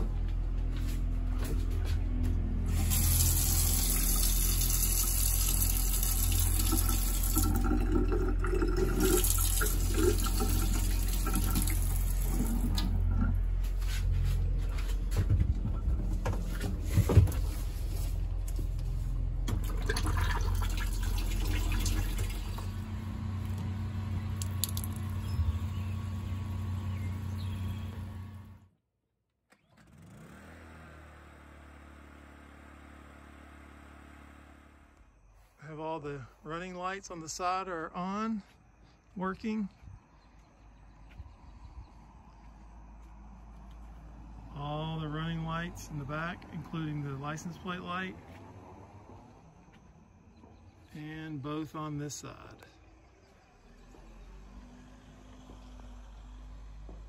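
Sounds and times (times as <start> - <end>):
toilet flushing: 2.7 - 13.4, 19.5 - 22.9
faucet running into steel sink: 2.8 - 12.9, 19.6 - 22.7.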